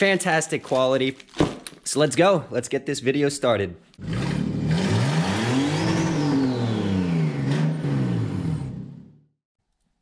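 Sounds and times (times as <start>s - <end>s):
car engine revving: 4.0s - 9.3s.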